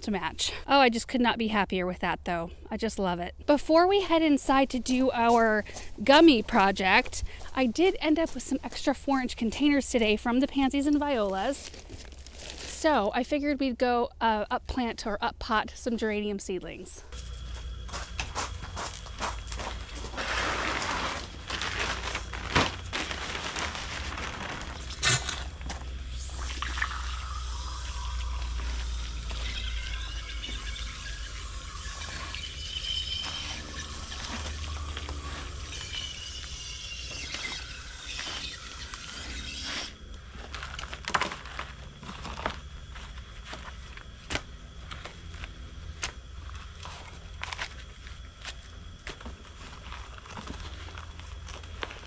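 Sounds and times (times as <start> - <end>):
steady low hum: 0.0 - 52.0
trowel scraping soil: 20.0 - 22.3, 24.8 - 25.6, 30.3 - 40.9.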